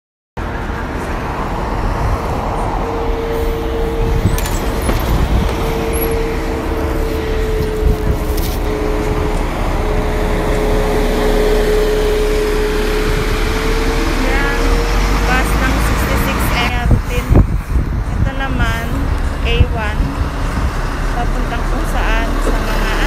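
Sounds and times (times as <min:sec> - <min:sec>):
bus engine humming: 0:00.4 - 0:23.0
road traffic noise: 0:00.4 - 0:23.0.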